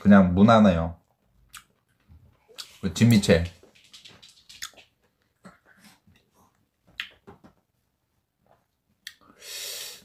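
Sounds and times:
short breathy hiss: 0:09.3 - 0:10.0.

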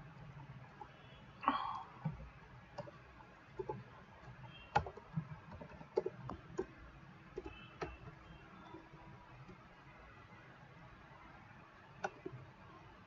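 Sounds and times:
computer keyboard keystroke clicks: 0:03.6 - 0:06.7, 0:12.0 - 0:12.4.

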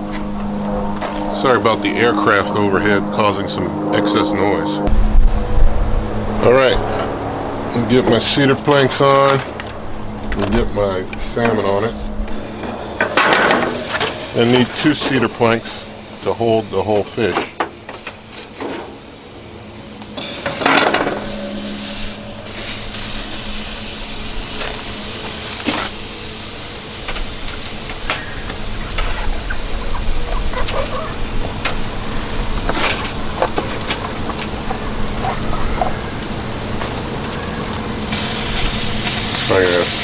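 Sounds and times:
steady hiss: 0:10.4 - 0:40.0
wooden planks knocking on grill grates: 0:32.6 - 0:36.0.

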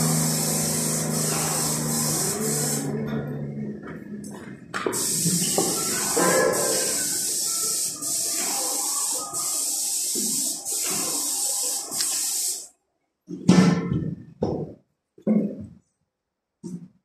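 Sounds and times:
paint spray gun hissing: 0:00.0 - 0:02.9, 0:04.9 - 0:12.7.

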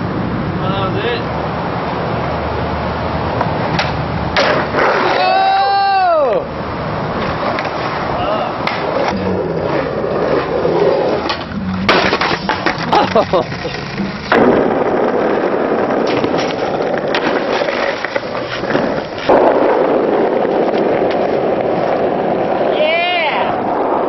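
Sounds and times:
skateboard wheels rolling on asphalt: 0:00.0 - 0:24.0
skateboard clacks: 0:03.4 - 0:05.7, 0:07.0 - 0:24.0.

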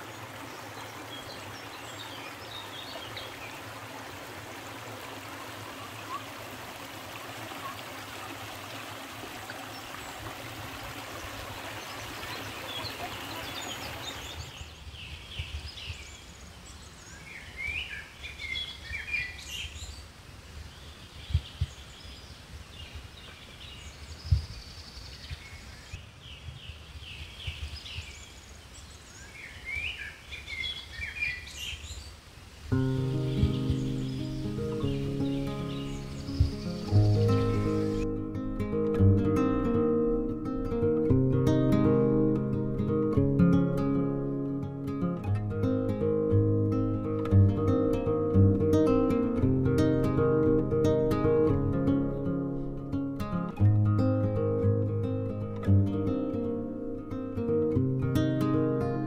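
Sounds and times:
stream over rocks: 0:00.0 - 0:24.4, 0:27.5 - 0:41.1
birds chirping and singing: 0:32.8 - 0:38.1
sharp low thumps: 0:36.2 - 0:37.4.

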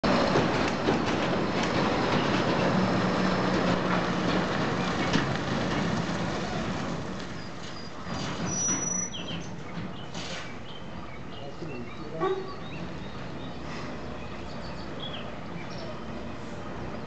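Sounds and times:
truck knocks and rattles: 0:00.0 - 0:10.8
diesel truck engine: 0:00.0 - 0:17.0.

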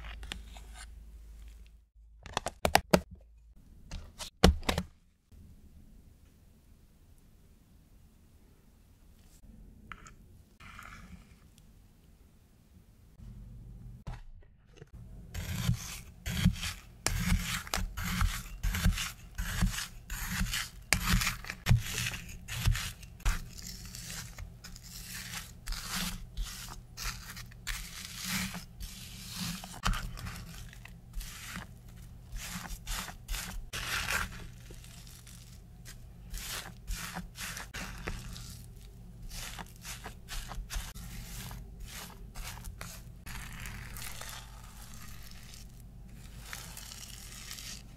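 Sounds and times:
fork scraping frozen sorbet: 0:15.3 - 0:47.9.

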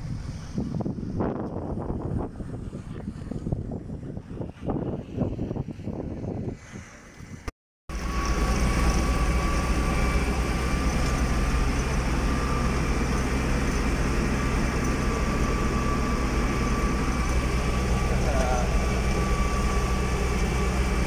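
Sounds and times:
tractor engine drone: 0:00.0 - 0:21.0
thin steady whine: 0:07.9 - 0:21.0.

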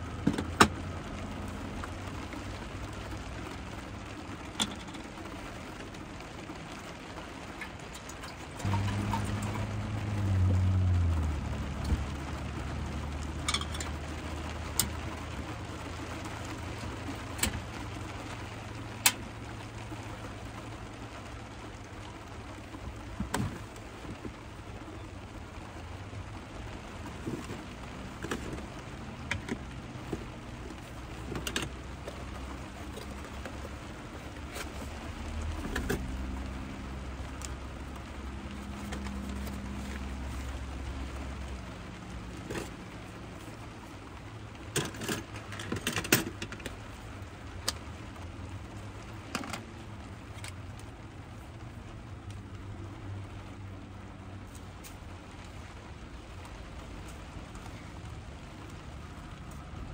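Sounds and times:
cooking gear clicking and clattering: 0:04.3 - 0:05.3, 0:07.5 - 0:09.9, 0:12.9 - 0:17.7, 0:27.0 - 0:36.6, 0:44.6 - 0:46.9, 0:49.2 - 0:49.7.

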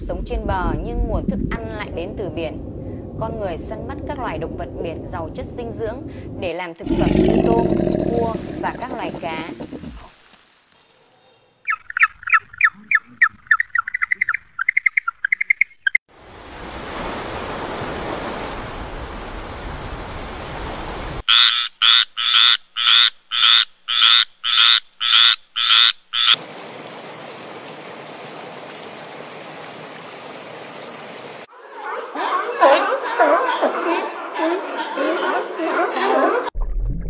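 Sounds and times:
tree frog croaking: 0:06.8 - 0:10.2, 0:21.3 - 0:26.4.

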